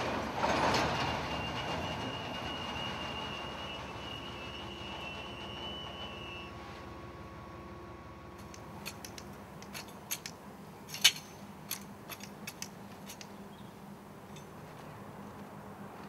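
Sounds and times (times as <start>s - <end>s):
garden tools clicking in stony soil: 8.4s - 13.7s.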